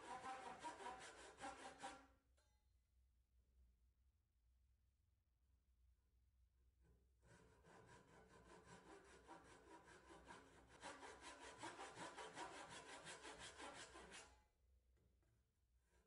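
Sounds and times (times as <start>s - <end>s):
hand saw cutting wood: 0.0s - 2.1s, 7.2s - 14.4s.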